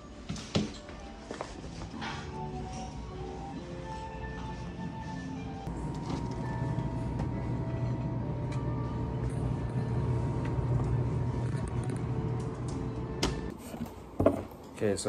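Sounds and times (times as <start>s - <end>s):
fridge humming: 5.7s - 14.5s.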